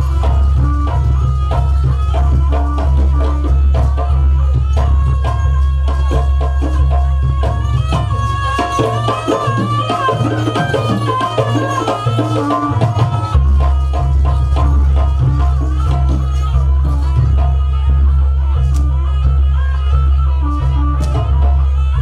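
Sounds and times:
drums and percussion: 0:00.0 - 0:22.0
high wavering melody: 0:00.0 - 0:22.0.

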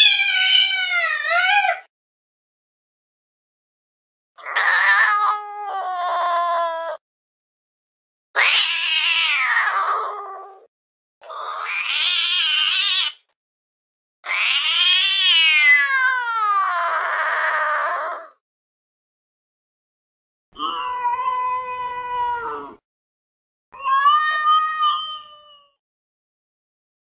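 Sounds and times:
cat meowing: 0:00.0 - 0:01.9, 0:04.4 - 0:07.0, 0:08.4 - 0:10.7, 0:11.3 - 0:13.2, 0:14.3 - 0:18.4, 0:20.6 - 0:22.8, 0:23.8 - 0:25.8.

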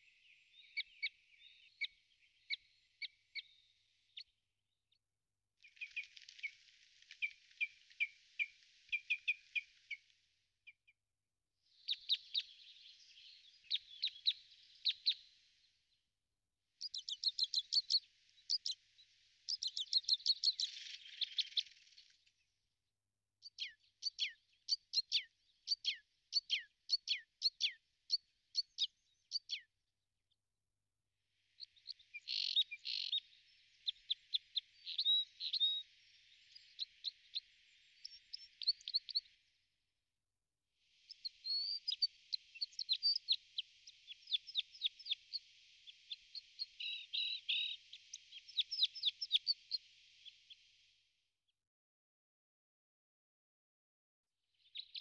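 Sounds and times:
songbird chirping: 0:00.0 - 0:04.4, 0:05.6 - 0:10.1, 0:11.7 - 0:15.7, 0:16.8 - 0:22.4, 0:23.5 - 0:29.7, 0:31.5 - 0:39.4, 0:41.0 - 0:50.9, 0:54.6 - 0:55.0.

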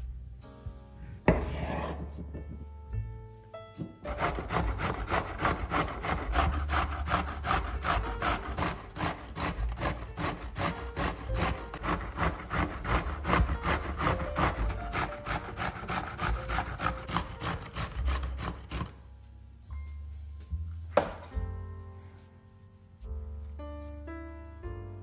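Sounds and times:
grating vegetable on box grater: 0:04.0 - 0:19.0
thump: 0:21.0 - 0:21.4.

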